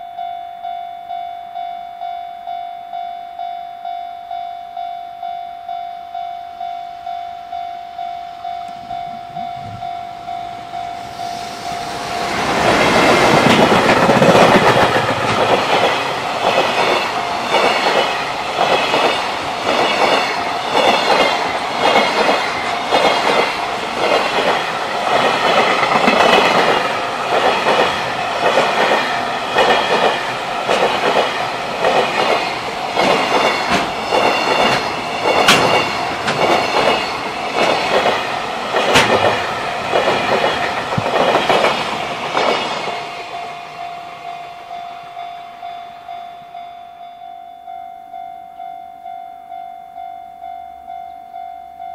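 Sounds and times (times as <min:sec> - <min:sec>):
electric locomotive passing: 0:05.7 - 0:51.9
wheels clickety-clack over rail joints: 0:12.0 - 0:43.1
sharp metal clanks: 0:34.6 - 0:37.0.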